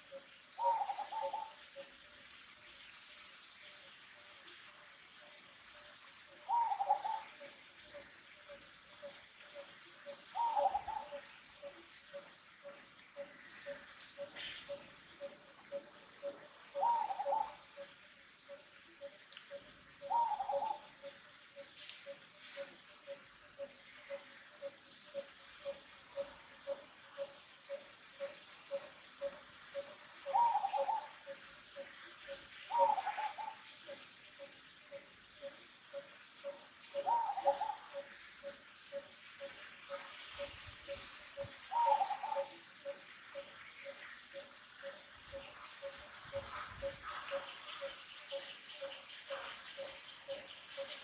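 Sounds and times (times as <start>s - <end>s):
wavering bird calls: 0.0s - 2.0s, 6.4s - 51.0s.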